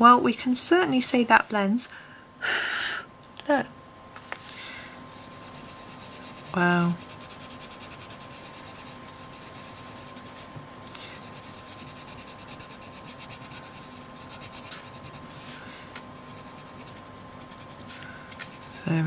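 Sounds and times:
crayon scratching on paper: 5.2s - 15.6s, 16.2s - 19.0s.

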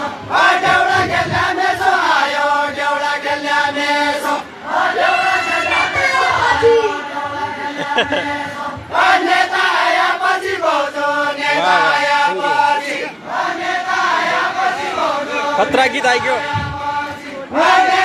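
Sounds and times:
group chant-like folk singing: 0.0s - 18.0s.

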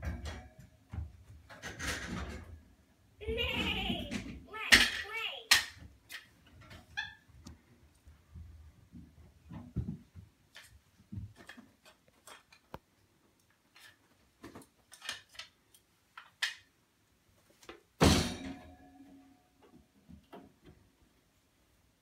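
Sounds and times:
wire rack bang and rattle: 18.0s - 18.9s.

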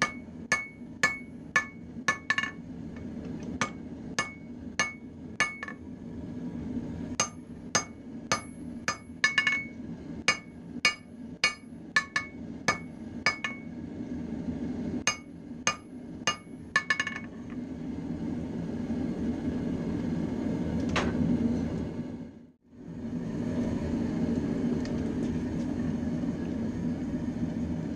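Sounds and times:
hammer ringing on anvil: 0.0s - 2.6s, 3.6s - 5.8s, 7.2s - 13.7s, 15.1s - 17.3s.

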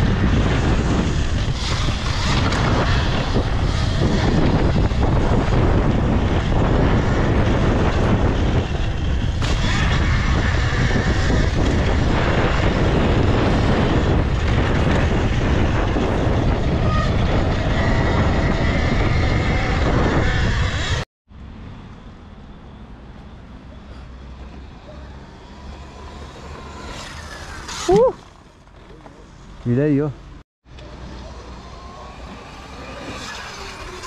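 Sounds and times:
wind rushing over microphone: 0.0s - 21.1s
dirt bike tyre and chassis rattle: 0.0s - 34.0s.

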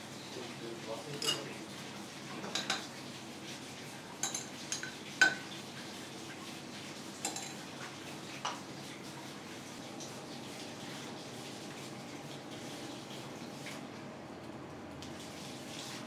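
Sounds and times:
dishes and utensils clinking: 1.1s - 1.5s, 2.4s - 2.9s, 4.2s - 5.4s, 7.2s - 7.6s.

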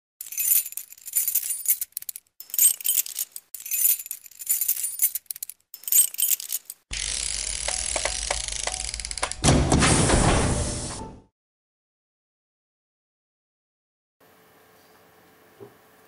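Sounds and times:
metallic jingling: 0.2s - 6.8s.

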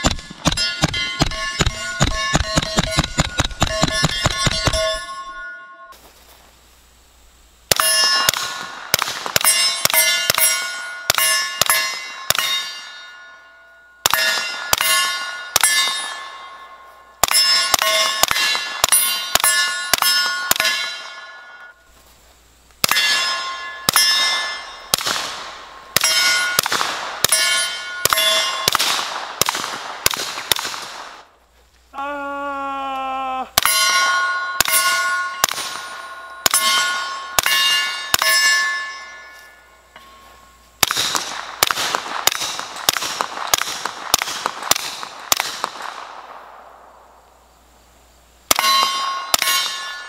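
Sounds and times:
bullets clanging on steel plates: 0.0s - 6.0s, 9.4s - 21.7s, 22.8s - 28.8s, 33.6s - 41.2s, 48.5s - 50.0s
suppressed gunshots: 23.9s - 31.3s, 40.8s - 46.9s.

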